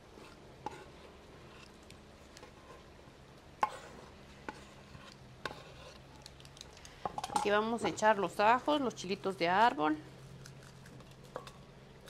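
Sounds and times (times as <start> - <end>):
knife scraping on wooden board: 3.6 - 6.0.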